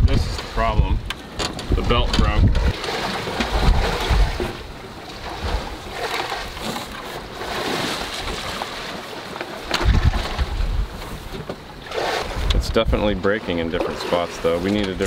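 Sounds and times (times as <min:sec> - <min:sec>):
wind gusting on microphone: 0:00.0 - 0:06.5, 0:09.7 - 0:13.2
sea washing: 0:00.2 - 0:15.0.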